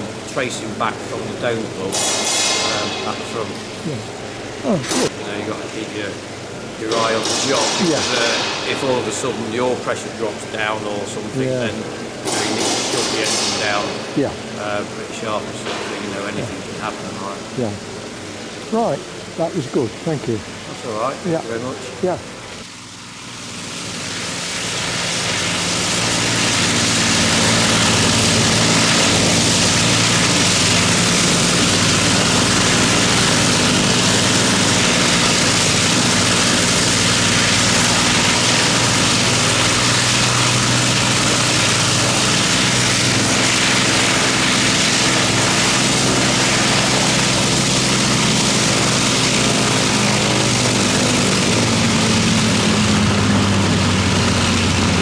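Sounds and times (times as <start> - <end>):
propeller aircraft engines running: 22.3 - 55.0
propeller rush: 22.3 - 55.0.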